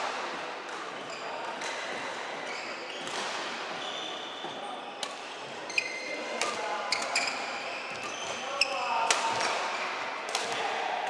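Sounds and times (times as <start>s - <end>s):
racket hitting shuttlecock: 0.0s - 3.8s, 6.2s - 7.2s, 9.0s - 11.0s
shoes squeaking on floor: 1.0s - 9.0s.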